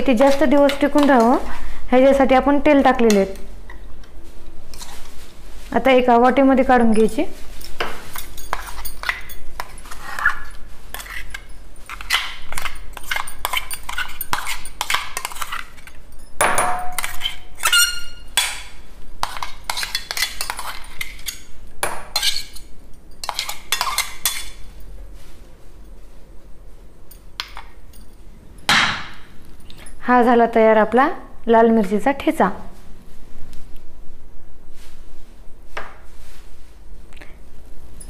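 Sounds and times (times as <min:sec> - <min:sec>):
metal spoon scraping steel jar: 0:08.1 - 0:16.0, 0:16.9 - 0:18.3, 0:22.1 - 0:24.6.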